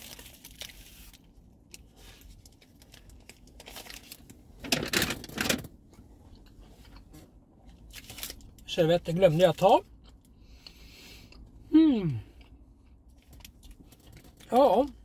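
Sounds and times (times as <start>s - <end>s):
packaging rustling and crinkling: 0.0s - 5.7s, 7.9s - 8.6s.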